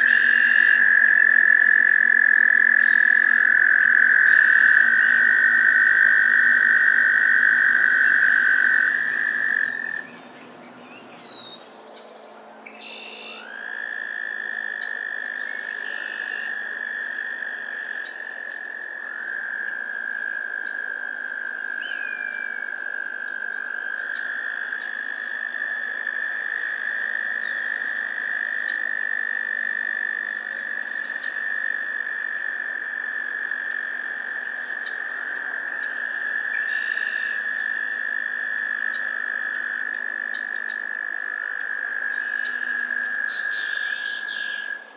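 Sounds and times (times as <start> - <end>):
toads trilling: 0.0 - 11.7, 12.7 - 44.9.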